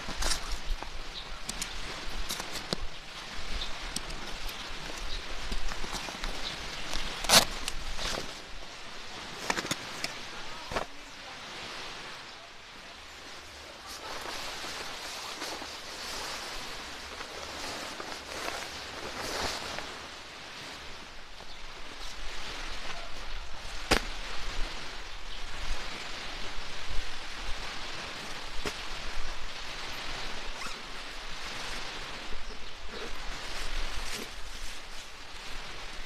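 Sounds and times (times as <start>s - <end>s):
tent being unpacked: 0.0s - 2.8s, 3.7s - 8.6s, 9.3s - 11.0s, 13.8s - 20.1s, 30.4s - 32.1s, 32.9s - 36.0s
tarp rustling and crinkling: 0.0s - 11.3s, 13.2s - 36.0s.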